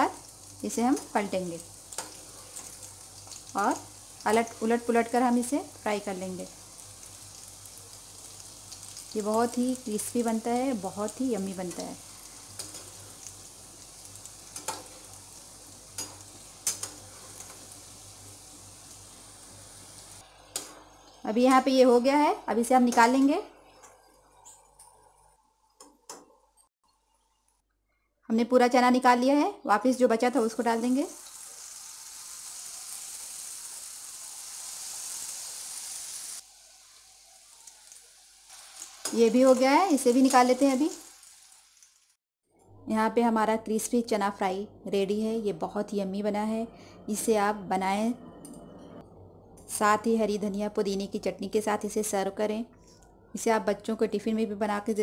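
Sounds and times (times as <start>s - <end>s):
food deep-frying in sizzling oil: 0.0s - 25.6s, 28.7s - 42.2s.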